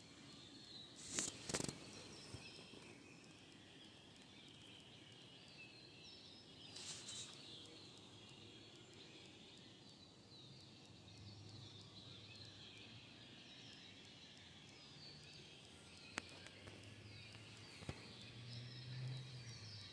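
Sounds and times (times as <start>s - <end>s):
faint high chirps: 0.0s - 19.9s
sharp clicks: 1.0s - 3.5s.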